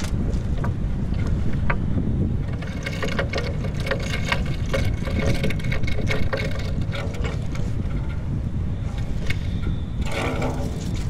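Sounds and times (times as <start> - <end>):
steady low rumble: 0.0 - 11.0
thin two-note hum: 3.4 - 11.0.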